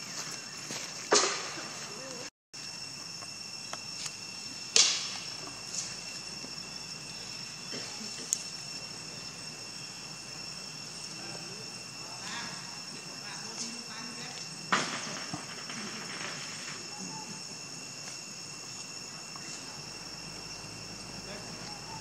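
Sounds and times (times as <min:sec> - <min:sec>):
insects droning: 0:00.0 - 0:22.0
sharp snaps: 0:04.7 - 0:05.2.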